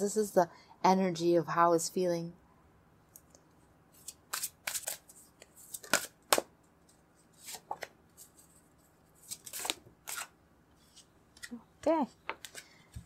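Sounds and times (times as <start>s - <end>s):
cards shuffled by hand: 4.0s - 11.6s, 12.3s - 13.0s.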